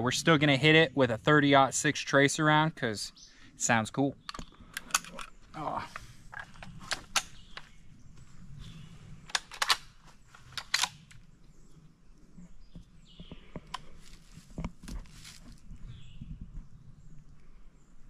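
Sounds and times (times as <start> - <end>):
rifle metallic clicks: 4.2 - 5.4, 9.3 - 11.2
quiet handling and movement: 4.3 - 11.5, 12.2 - 16.8.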